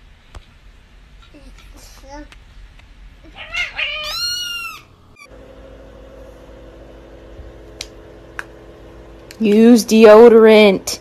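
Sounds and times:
cat meowing: 3.2s - 5.3s.

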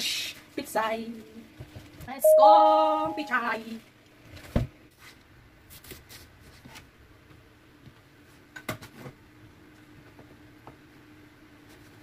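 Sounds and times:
faint steady hum: 0.0s - 4.5s.

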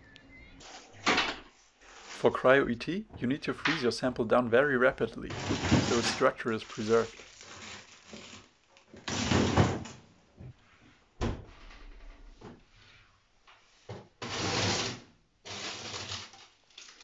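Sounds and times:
plastic freezer drawer sliding: 5.3s - 6.3s.

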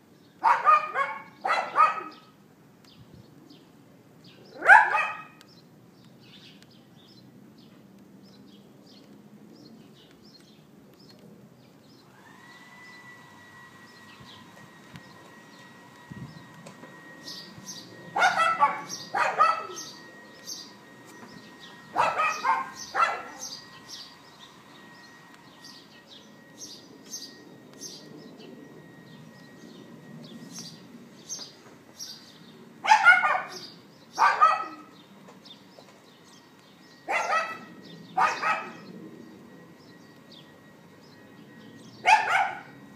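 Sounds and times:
small birds chirping: 0.0s - 42.9s
dog barking: 0.4s - 2.3s, 4.6s - 5.4s, 18.2s - 19.9s, 22.0s - 23.5s, 32.8s - 35.0s, 37.1s - 38.8s, 42.1s - 42.8s.

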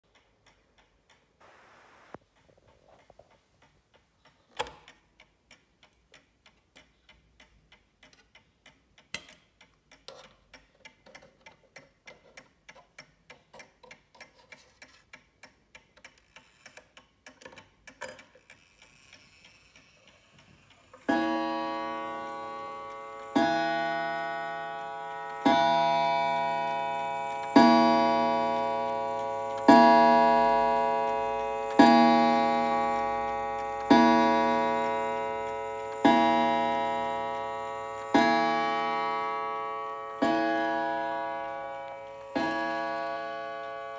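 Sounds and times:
clock ticking: 0.0s - 1.4s, 2.1s - 43.9s
clock gong striking: 21.1s - 43.9s.

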